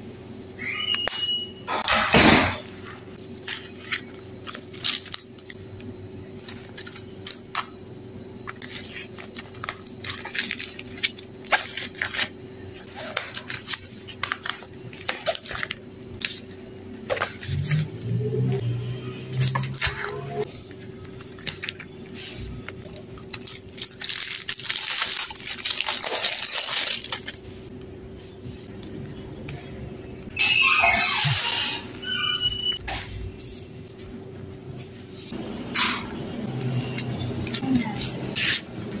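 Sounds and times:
packaging rustle: 0:03.4 - 0:07.6, 0:08.5 - 0:16.5, 0:20.7 - 0:27.7.

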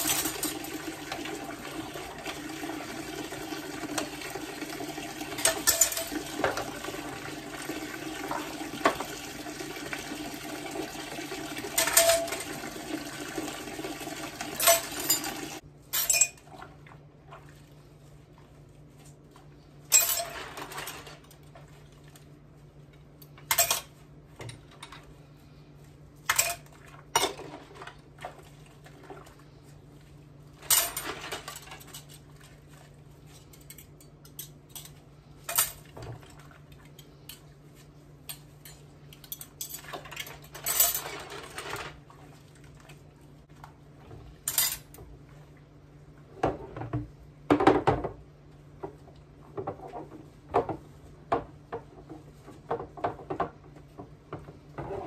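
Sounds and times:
dishes clattering in sink: 0:00.0 - 0:01.4, 0:05.2 - 0:09.3, 0:11.1 - 0:13.5, 0:14.3 - 0:16.8, 0:19.9 - 0:21.6, 0:23.2 - 0:25.1, 0:26.3 - 0:28.4, 0:30.6 - 0:32.4, 0:33.3 - 0:37.4, 0:38.2 - 0:42.1, 0:46.4 - 0:48.2, 0:48.8 - 0:55.0.

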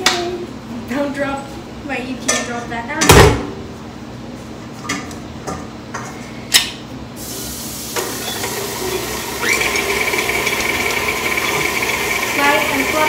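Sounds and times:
electric stand mixer whine: 0:08.0 - 0:13.0.

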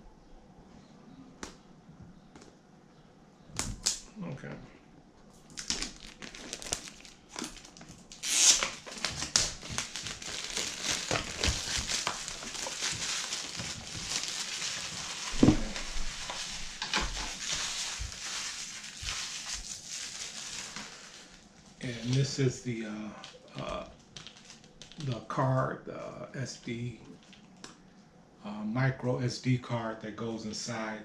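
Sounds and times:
plastic wrap crinkling: 0:05.4 - 0:22.4, 0:23.2 - 0:25.1, 0:27.1 - 0:27.7
plastic wrap ripping: 0:05.4 - 0:22.4, 0:23.6 - 0:25.1.

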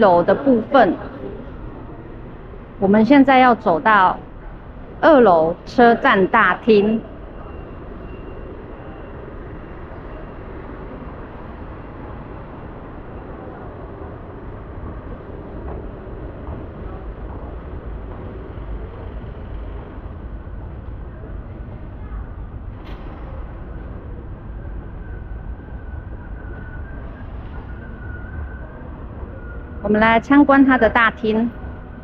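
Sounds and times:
low rumble: 0:13.9 - 0:29.9.

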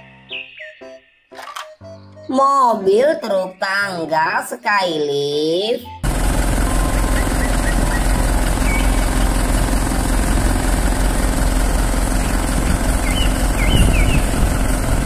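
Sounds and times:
truck engine running: 0:06.0 - 0:15.0.

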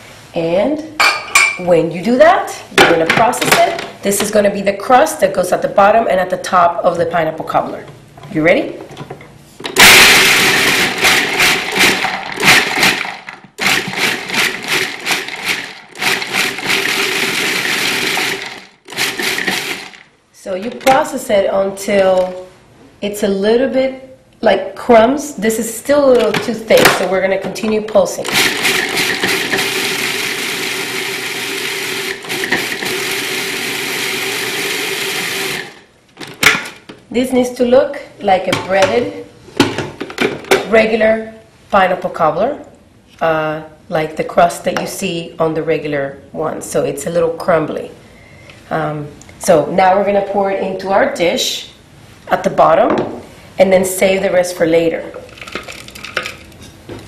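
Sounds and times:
food processor chopping: 0:09.8 - 0:20.0, 0:28.3 - 0:35.8
hard pieces rattling in bowl: 0:11.0 - 0:20.0, 0:55.3 - 0:56.6.

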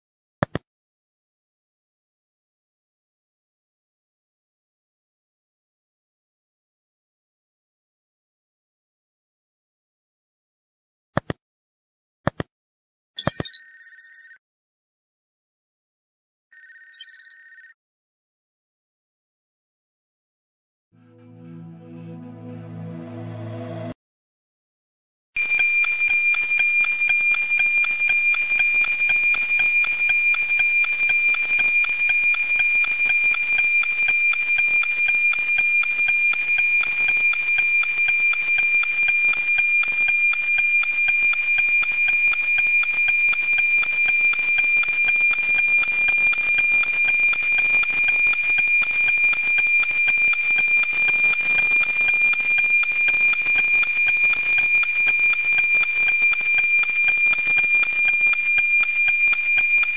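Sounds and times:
steady high tone with ticking: 0:13.2 - 0:14.4, 0:16.9 - 0:17.7.

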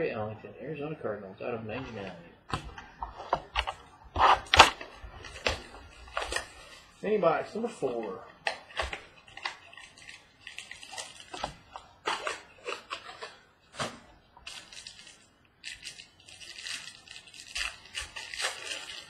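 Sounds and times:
plastic wrapper crinkling: 0:03.2 - 0:07.2, 0:07.8 - 0:19.0.

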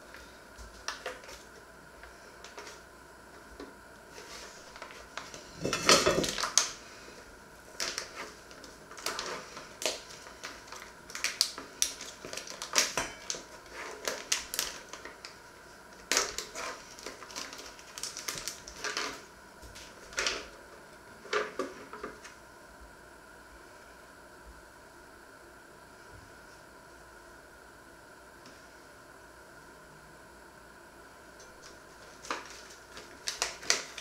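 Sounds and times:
plastic packet crinkling: 0:04.2 - 0:06.8, 0:07.7 - 0:20.5, 0:31.5 - 0:34.0.

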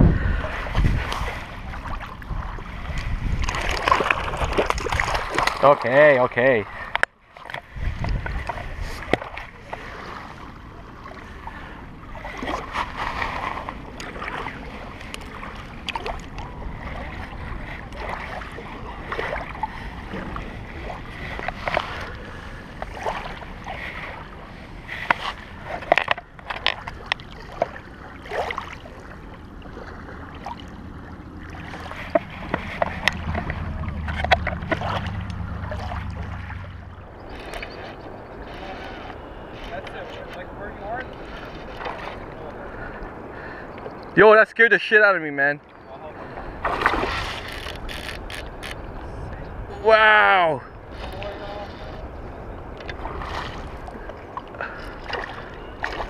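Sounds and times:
water splashing and sloshing: 0:00.0 - 0:56.0
low rumble: 0:30.2 - 0:39.6.

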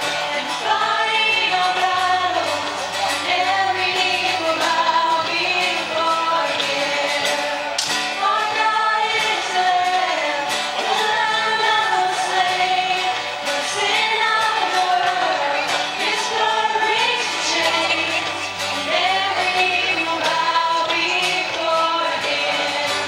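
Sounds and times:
band accompaniment: 0:00.0 - 0:23.0
strummed acoustic guitar: 0:00.0 - 0:23.0
woman singing: 0:00.0 - 0:23.0.

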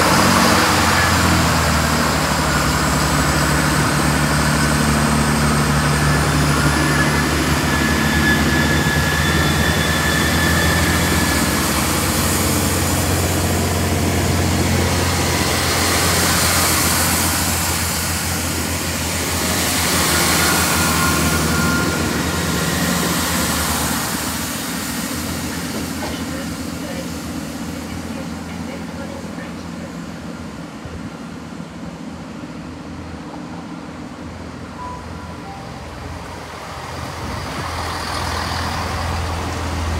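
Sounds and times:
train diesel engines running: 0:00.0 - 0:39.9
faint high whine: 0:03.8 - 0:26.3.

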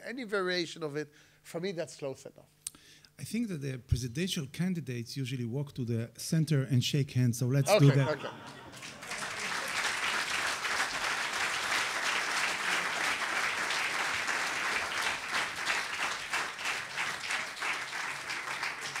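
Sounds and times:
audience applauding: 0:07.8 - 0:19.0.

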